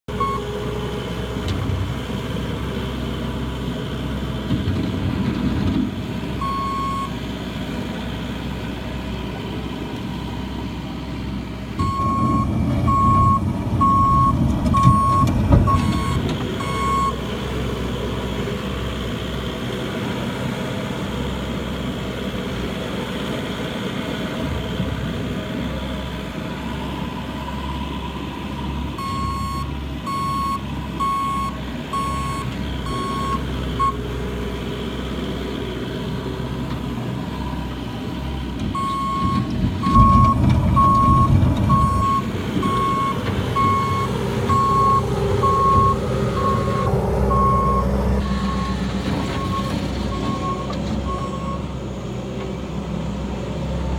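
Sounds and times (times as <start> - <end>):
loader engine running: 0.1 - 53.9
reversing alarm beeping: 0.2 - 0.5, 6.4 - 7.1, 11.8 - 17.2, 29.0 - 34.0, 38.8 - 51.7.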